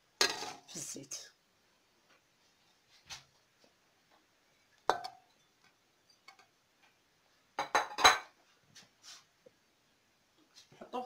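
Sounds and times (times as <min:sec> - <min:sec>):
utensil clinking metal pot: 0:04.9 - 0:06.5.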